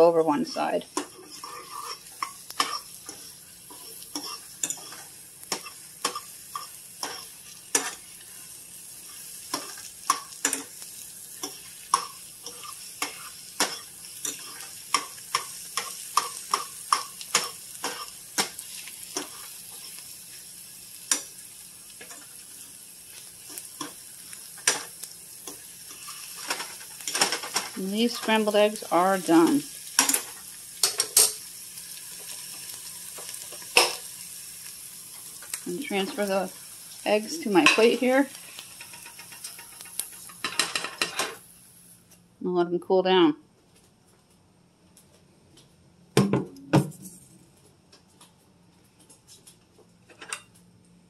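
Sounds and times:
eggs sizzling: 0.0 - 42.1
fork scraping frying pan: 1.0 - 8.4, 11.4 - 20.0, 37.4 - 41.4.

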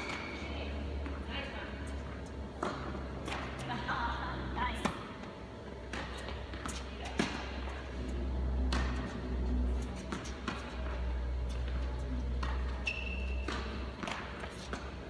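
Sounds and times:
tennis balls hit with rackets: 0.0 - 1.3, 2.5 - 15.0
steady low hum: 0.0 - 15.0
tennis balls bouncing: 0.0 - 15.0
shoe squeak: 12.7 - 13.9.

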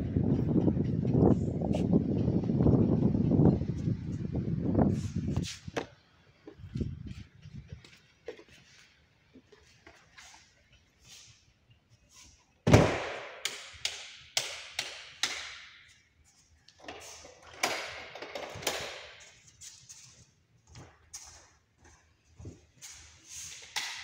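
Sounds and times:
knocks echoing in a room: 12.7 - 16.1.

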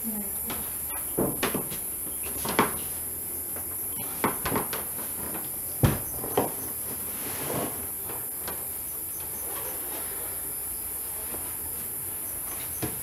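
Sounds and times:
crickets and night insects chirring: 0.0 - 13.0
soft rustle: 6.8 - 12.7.

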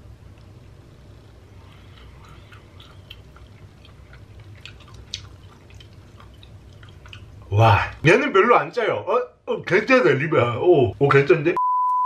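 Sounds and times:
low steady hum: 0.0 - 12.0
wet chewing mouth clicks: 1.5 - 7.5.

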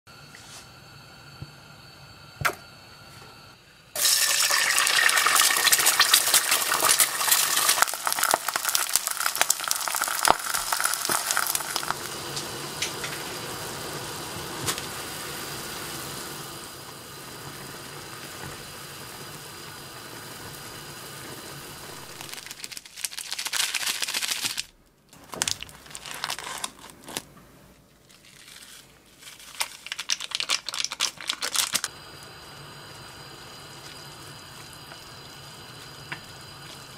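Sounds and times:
egg sizzling in hot oil: 4.0 - 23.4, 29.4 - 36.9
foil packet rustling: 5.0 - 12.0, 22.0 - 31.9.

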